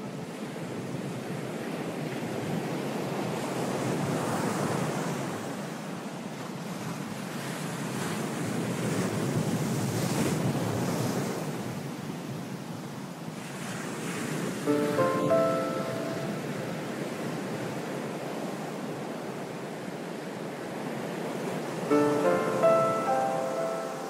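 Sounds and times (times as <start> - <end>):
surf-like rushing noise: 13.4 - 17.3, 19.5 - 24.0.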